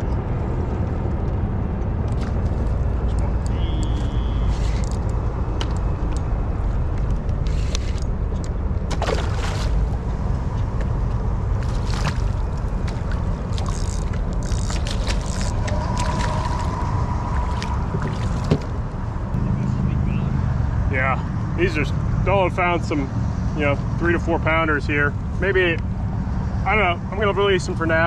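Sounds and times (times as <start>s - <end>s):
boat engine low rumble: 0.0s - 28.0s
water noise: 6.8s - 19.9s.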